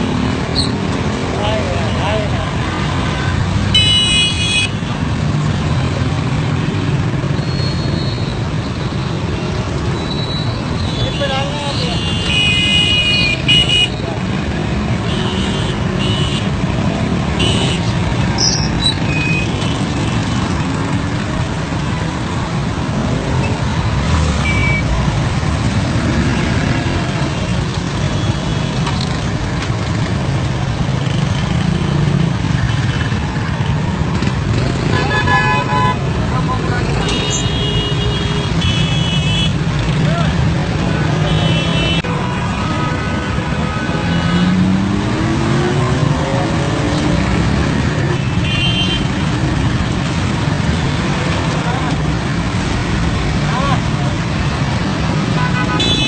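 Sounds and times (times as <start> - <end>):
motorcycle and car engines rumbling: 0.0 - 56.0
vehicle horn honking: 55.4 - 56.0.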